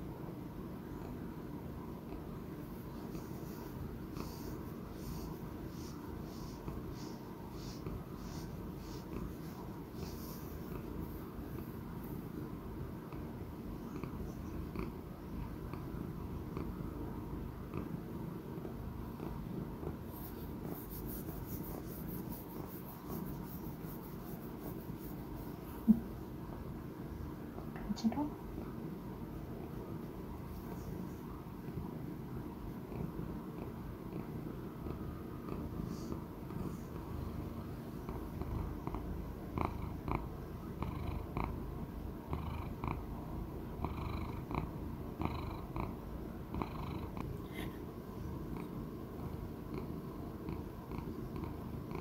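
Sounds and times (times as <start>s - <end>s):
cat purring: 0.6s - 52.0s
hand stroking fur: 20.1s - 25.8s.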